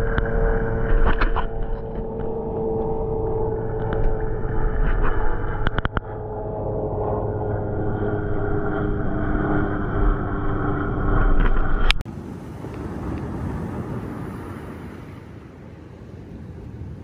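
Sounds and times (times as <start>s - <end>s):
faint hum: 0.0s - 17.0s
outdoor rumble: 0.0s - 17.0s
hissy open-air noise: 12.1s - 17.0s.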